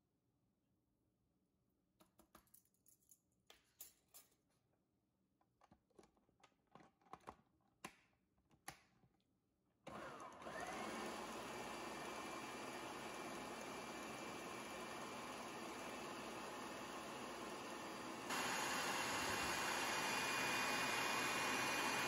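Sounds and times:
food processor motor whirring: 9.9s - 22.0s.

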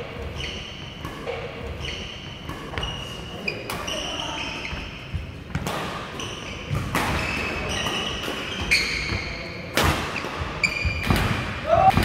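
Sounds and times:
shoes squeaking on court floor: 0.0s - 11.2s
racket hitting shuttlecock: 0.2s - 3.0s, 5.5s - 12.0s.

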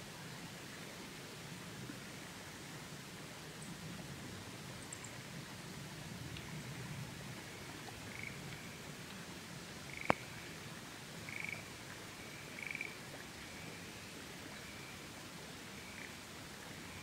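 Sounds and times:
faint steady hiss: 0.0s - 17.0s
frogs croaking: 7.4s - 8.9s, 9.8s - 10.5s, 11.2s - 15.1s, 15.8s - 17.0s.

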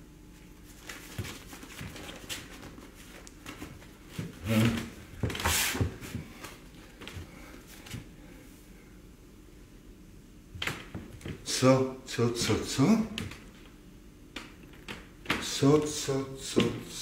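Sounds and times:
paper rustling and crackling: 0.7s - 5.7s.

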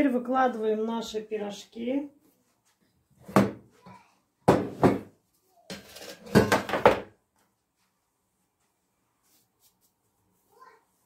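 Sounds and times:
metal tray clattering on stove: 5.7s - 6.7s.

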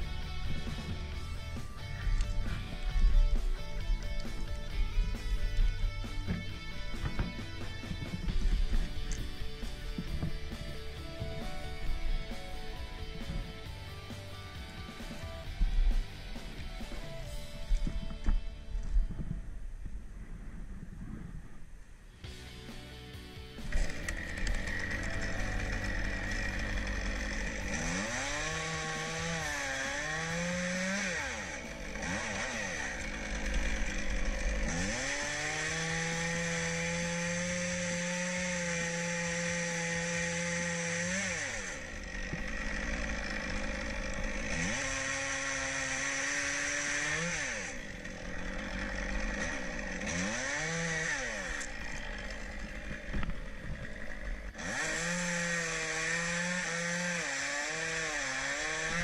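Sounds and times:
chainsaw revving and cutting wood: 0.0s - 19.4s, 22.2s - 59.0s.

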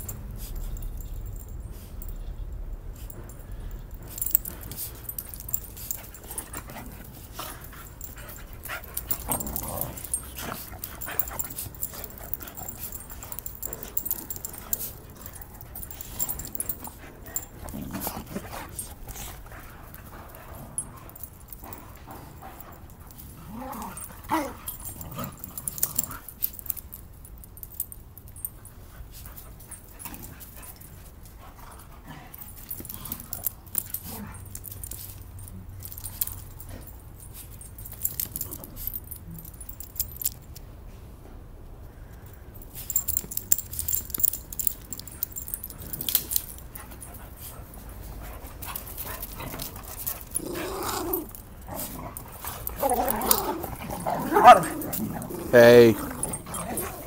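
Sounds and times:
short clinks and jingles: 0.0s - 40.6s, 42.2s - 57.0s
dogs scuffling: 2.9s - 26.9s, 42.7s - 57.0s
dog whining: 50.4s - 57.0s.

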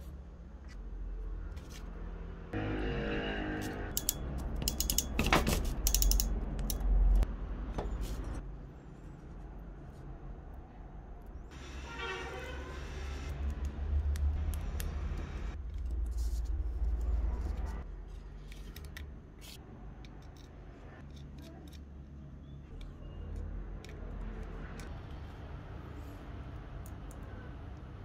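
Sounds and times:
small metal parts clicking: 4.0s - 7.2s.

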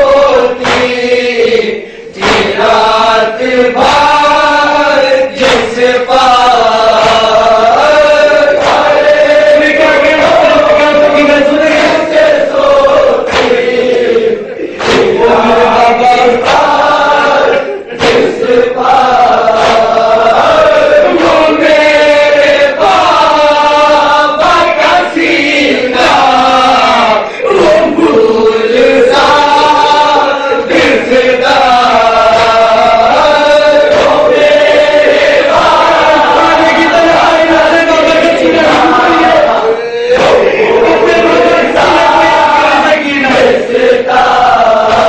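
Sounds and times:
man chanting melodically: 0.0s - 13.2s
sharp slaps: 0.0s - 45.0s.

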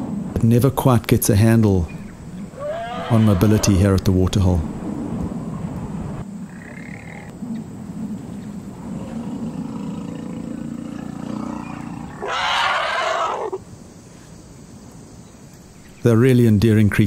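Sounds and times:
elephant rumbling: 0.0s - 14.0s
elephant roaring: 2.3s - 3.8s, 8.6s - 13.6s.

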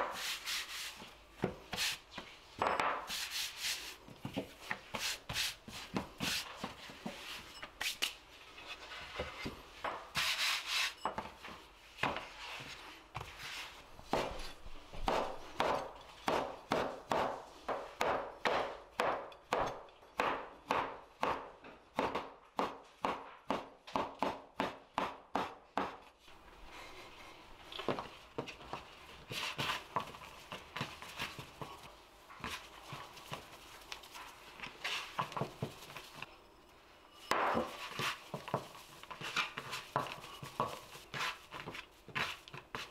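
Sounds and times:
dough pressed and folded: 0.0s - 42.9s
knife chopping on wooden board: 14.1s - 26.0s.

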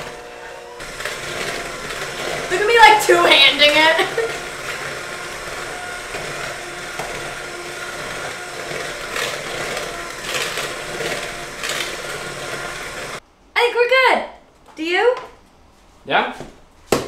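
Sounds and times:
electric hand mixer running: 0.0s - 13.2s.

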